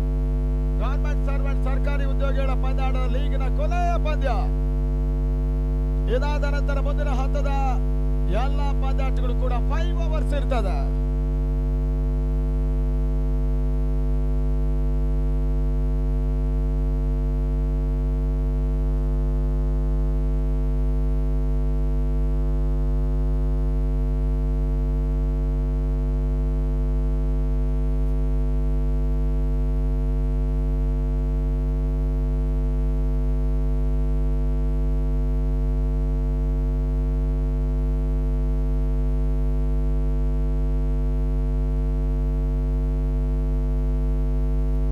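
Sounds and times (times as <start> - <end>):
electrical mains hum: 0.0 - 13.5.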